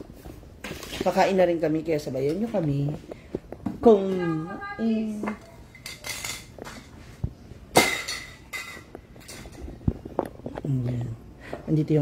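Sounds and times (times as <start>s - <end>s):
cutlery and dishes clinking: 5.2s - 7.0s, 7.7s - 10.1s.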